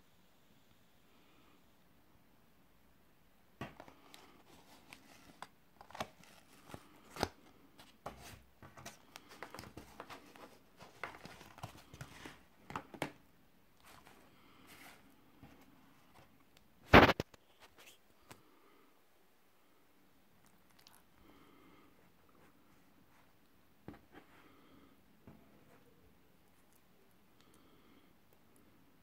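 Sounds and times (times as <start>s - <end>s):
cardboard box opening: 3.7s - 13.2s
paper wrapping crinkling: 3.8s - 12.4s.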